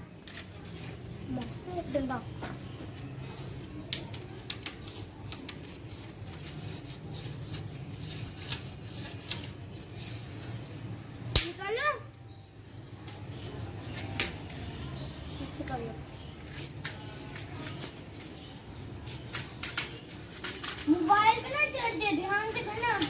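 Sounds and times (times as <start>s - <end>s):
stick tapping on brick wall: 3.7s - 9.5s.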